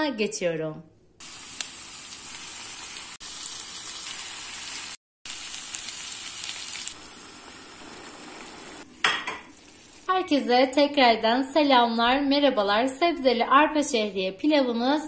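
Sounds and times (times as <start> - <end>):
food sizzling in frying pan: 1.2 - 10.1.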